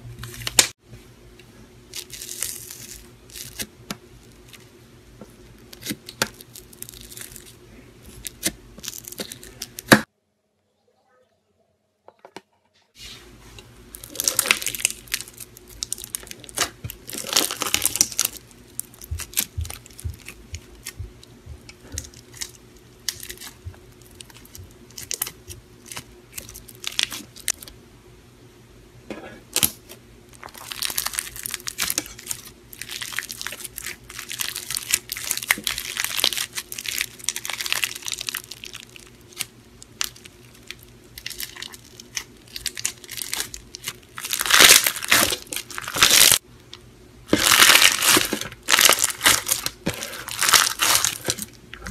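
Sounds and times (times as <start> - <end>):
slime squished crackling and popping: 1.9 - 3.7, 13.9 - 27.6, 29.6 - 46.4, 47.3 - 51.9.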